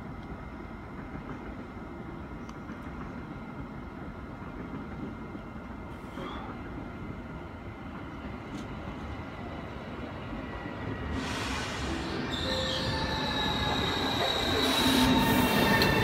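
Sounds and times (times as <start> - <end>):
distant train rumble: 0.0 - 16.0
brief hiss: 11.1 - 12.2
short high squeak: 11.5 - 16.0.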